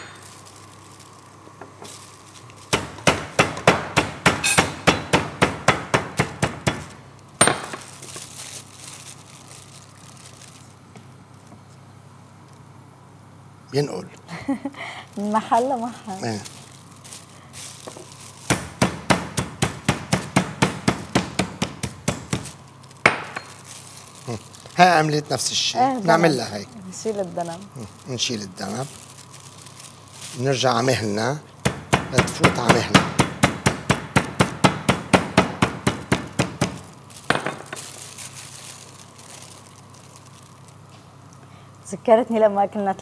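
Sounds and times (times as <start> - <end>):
plastic sheet rustling: 0.0 - 3.0, 6.1 - 11.8, 15.1 - 31.4, 32.2 - 41.4
meat mallet thudding on board: 18.5 - 22.4, 31.7 - 37.6.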